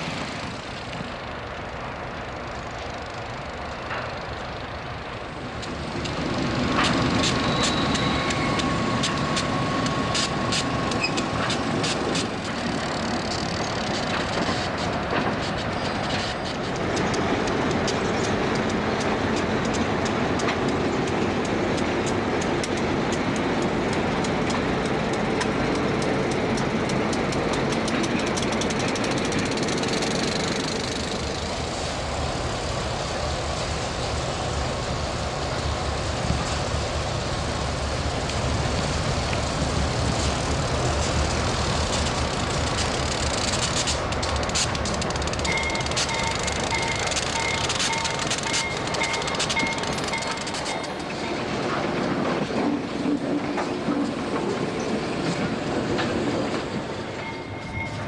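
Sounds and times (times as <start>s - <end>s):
clanks from wheels and couplers: 5.2s - 31.5s, 40.2s - 58.0s
high wheel squeal: 6.9s - 14.7s.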